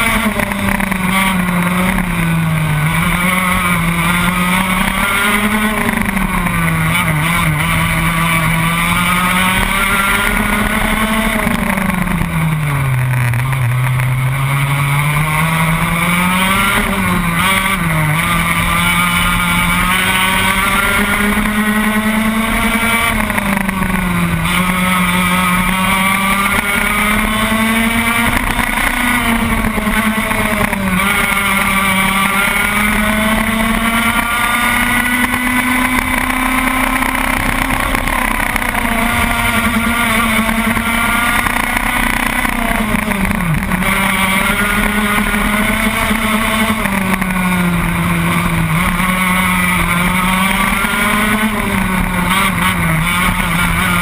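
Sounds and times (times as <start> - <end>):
racing kart engine revving: 0.0 - 54.0.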